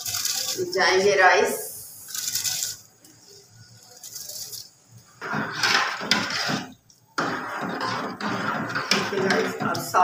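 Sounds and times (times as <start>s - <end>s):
rice stirred in steel pot: 2.2s - 10.0s.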